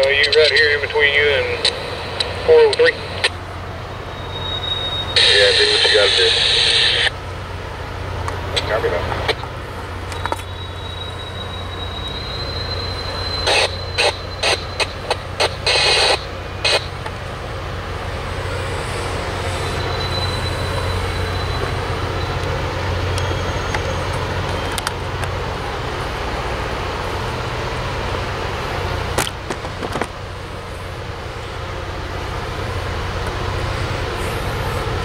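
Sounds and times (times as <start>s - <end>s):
train locomotive rumbling: 0.0s - 35.0s
faint high squeal: 3.9s - 6.8s, 10.1s - 15.0s, 18.9s - 24.8s
short sharp hissing bursts: 18.3s - 21.3s.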